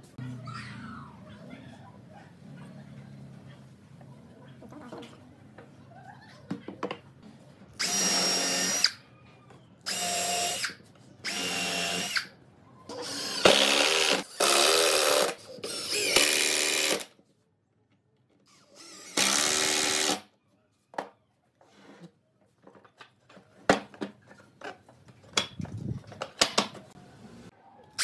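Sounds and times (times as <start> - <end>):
cordless drill drilling into wood: 7.8 - 9.0, 11.3 - 12.2, 12.9 - 17.1, 18.8 - 20.2.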